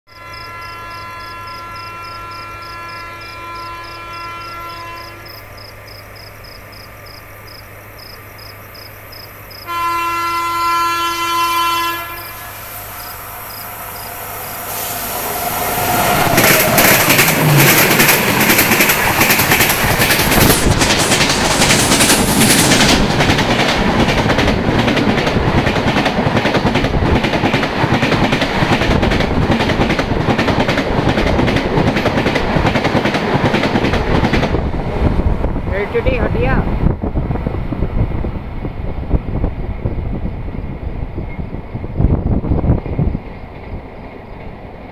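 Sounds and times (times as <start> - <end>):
train horn blast: 0.1 - 5.5, 9.6 - 18.0
train passing rumble: 0.2 - 44.9
wheels clickety-clack over rail joints: 16.3 - 36.6.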